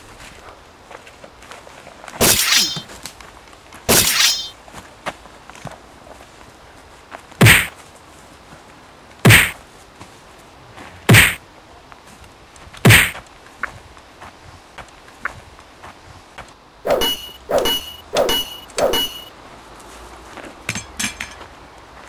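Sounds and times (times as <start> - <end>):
fight punches hitting: 7.4 - 7.7, 9.2 - 9.6, 11.1 - 11.4, 12.9 - 13.2
rasping hits: 7.4 - 7.7, 9.2 - 9.6, 11.1 - 11.4, 12.8 - 13.2, 16.9 - 19.3
heavy thuds: 7.4 - 7.8, 9.2 - 9.6, 11.1 - 11.4, 12.8 - 13.2.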